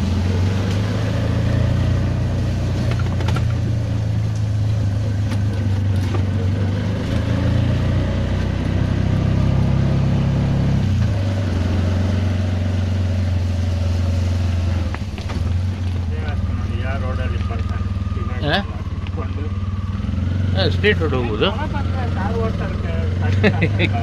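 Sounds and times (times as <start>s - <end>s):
auto-rickshaw engine drone: 0.0s - 24.0s.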